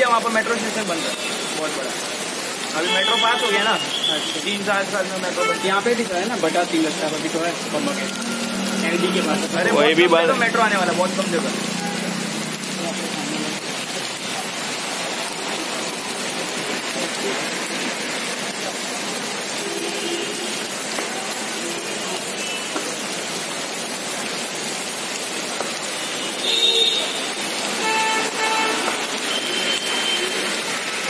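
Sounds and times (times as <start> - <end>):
rain hissing on street: 0.0 - 31.0
vehicle horns honking: 2.8 - 4.5, 5.3 - 6.0, 26.1 - 30.5.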